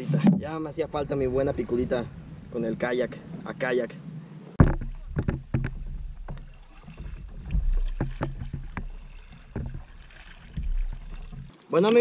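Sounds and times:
low steady rumble: 0.4 - 11.5
short sharp clicks and knocks: 4.6 - 11.5
paddle strokes in water: 4.6 - 11.8.

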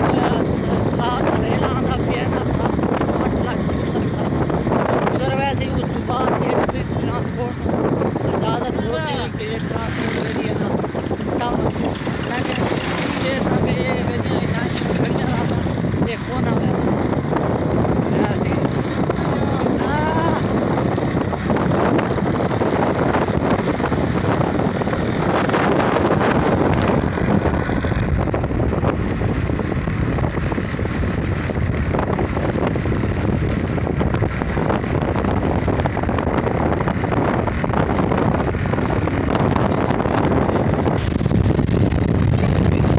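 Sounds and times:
vehicle engine and road noise: 0.0 - 42.9
wind buffeting microphone: 0.0 - 42.9.

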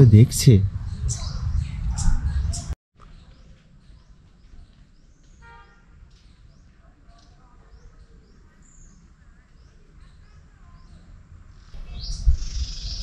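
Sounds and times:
faint bird chirps: 0.8 - 13.0.

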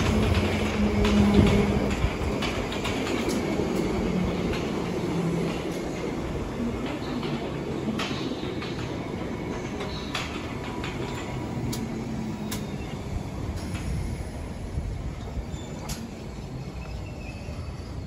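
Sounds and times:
wheels clicking over rail joints: 0.0 - 14.1, 15.0 - 17.0
train wheels rumbling: 0.0 - 18.0.

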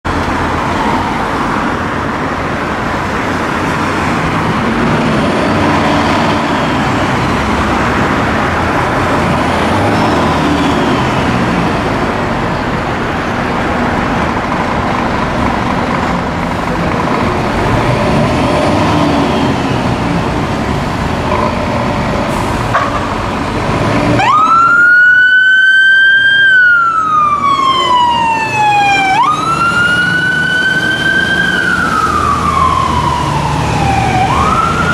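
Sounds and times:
engines rumbling: 0.0 - 34.9
road traffic: 0.0 - 34.9
wailing siren: 24.1 - 34.9.

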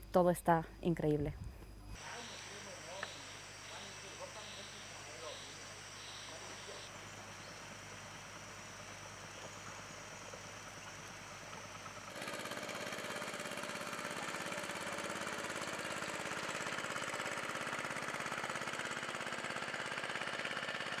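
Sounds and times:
high insect-like tones: 1.0 - 12.1
engine running with fast pulse: 2.0 - 21.0.

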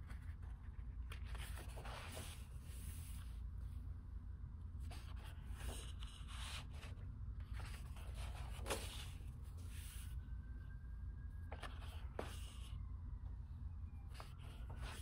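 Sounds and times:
book pages turning: 0.0 - 3.4, 4.8 - 10.2, 11.5 - 12.7, 14.1 - 15.0
faint low hum: 0.0 - 15.0.

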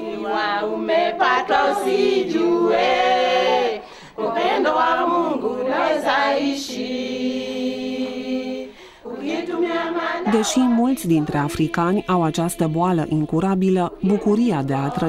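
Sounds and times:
group singing long held notes: 0.0 - 15.0.

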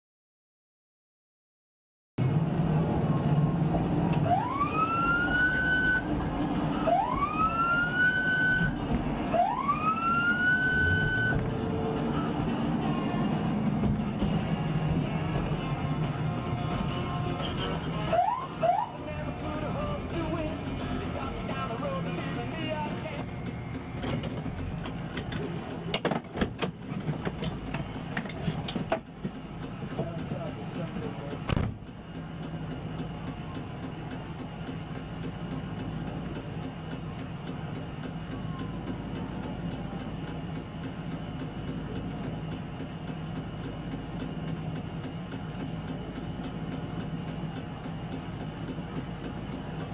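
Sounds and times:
road and engine rumble: 2.2 - 49.9
police siren wails: 4.1 - 13.5, 18.1 - 19.0.

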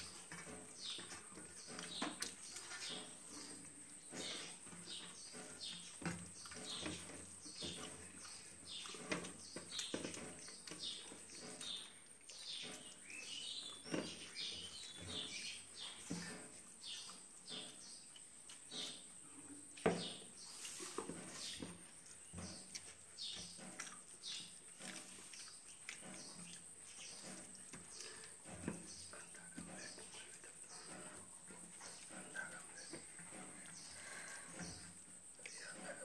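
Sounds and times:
chewing and lip smacks: 23.8 - 26.6.

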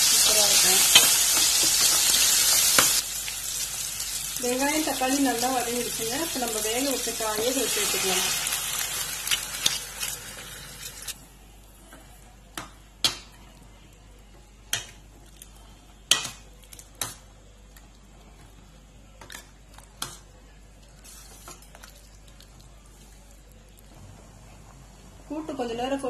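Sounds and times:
liquid sizzling: 0.0 - 11.2.

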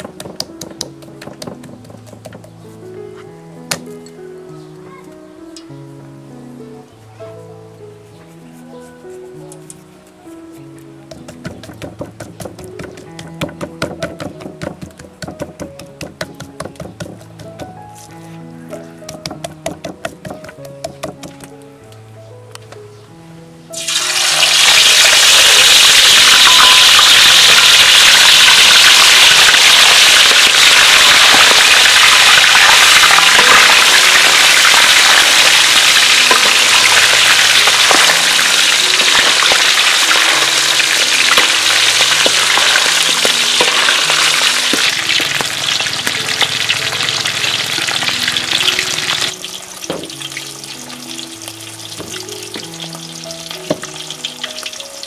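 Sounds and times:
fish sizzling in hot oil: 23.8 - 55.0.

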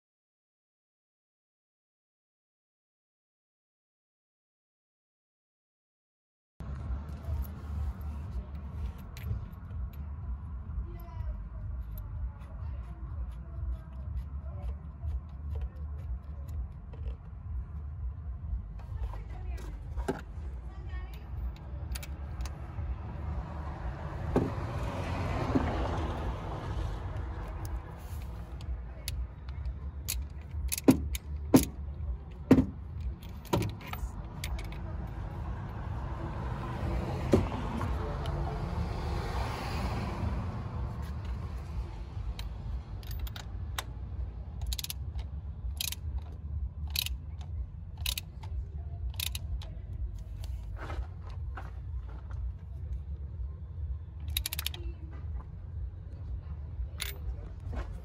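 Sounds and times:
steady low rumble: 6.6 - 39.2, 39.8 - 58.0
socket ratchet clicking: 27.4 - 34.9, 42.4 - 44.0, 44.6 - 50.6, 54.3 - 54.8.

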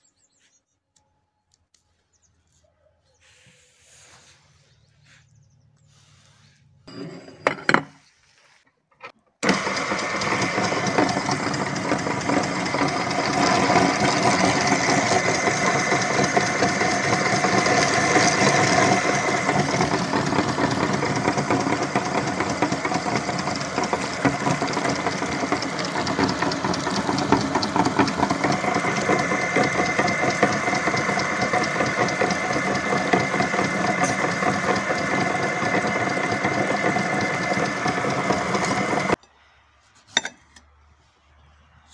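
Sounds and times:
meat grinder motor humming and rattling: 9.4 - 39.2.

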